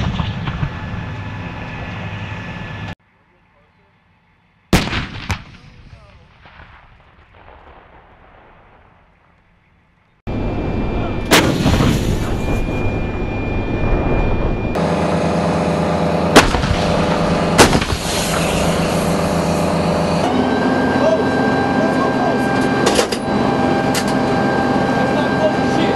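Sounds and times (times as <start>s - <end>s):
cannon blasts: 0.0s - 1.5s, 4.7s - 9.2s, 10.4s - 14.8s, 16.2s - 19.5s
diesel engine rumble: 10.3s - 25.9s.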